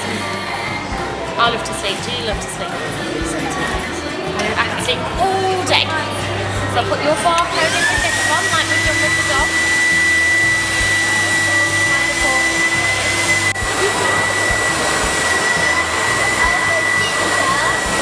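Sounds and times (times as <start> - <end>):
blower rushing air: 6.2 - 18.0
high whine: 7.4 - 18.0.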